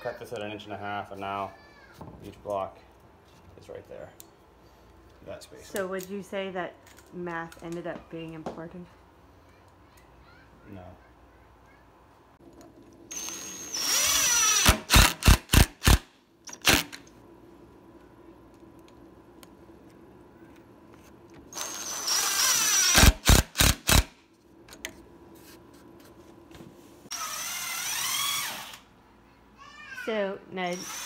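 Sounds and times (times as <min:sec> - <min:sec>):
power drill boring into wood: 0:13.1 - 0:16.9, 0:21.5 - 0:24.1, 0:27.1 - 0:28.9, 0:30.7 - 0:31.0.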